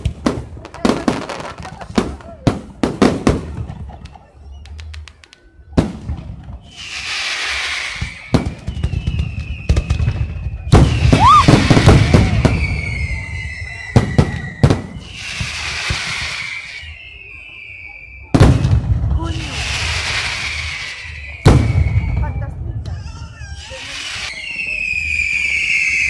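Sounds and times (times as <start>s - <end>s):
fireworks bangs: 0.0s - 26.0s
hissing crackle of fireworks: 0.0s - 26.0s
whistles of rising shells: 6.5s - 18.7s, 19.5s - 22.6s, 23.6s - 26.0s.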